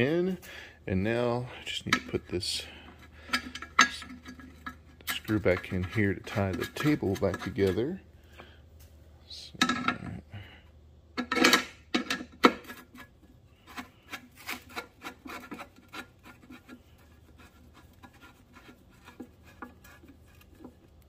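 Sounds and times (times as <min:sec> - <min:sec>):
screwdriver metal clicks and scrapes: 0:03.0 - 0:07.8.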